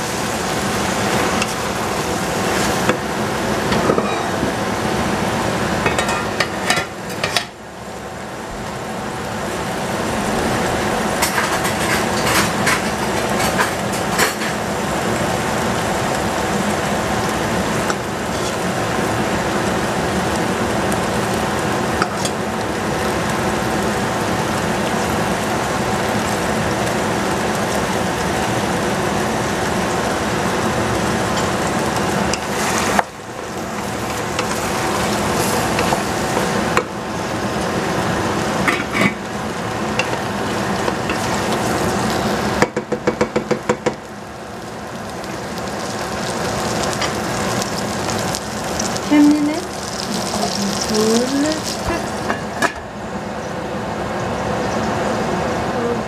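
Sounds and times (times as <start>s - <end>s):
vegetables sizzling in a pot: 0.0s - 56.0s
wooden spoon knocking pot: 42.6s - 44.0s.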